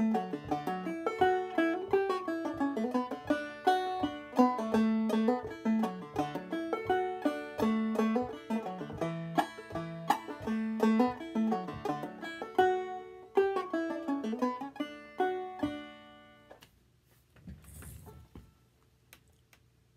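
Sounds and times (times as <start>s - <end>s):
banjo playing a fiddle tune: 0.0s - 16.5s.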